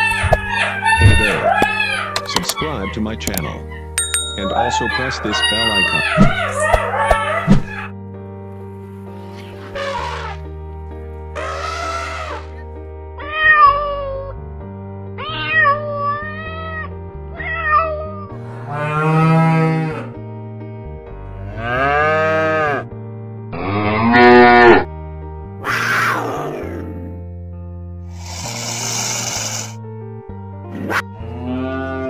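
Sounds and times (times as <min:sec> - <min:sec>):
background music: 0:00.0 - 0:32.0
high wavering cries: 0:03.8 - 0:07.9
cow mooing: 0:18.7 - 0:20.1, 0:21.4 - 0:22.9, 0:23.5 - 0:24.9, 0:31.2 - 0:32.0.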